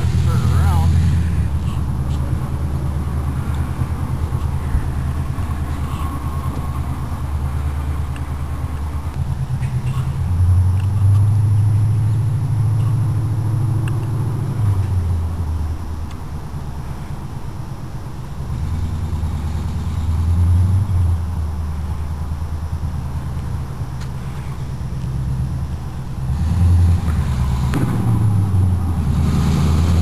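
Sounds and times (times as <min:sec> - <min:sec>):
vee eight engine exhaust note: 0:00.0 - 0:30.0.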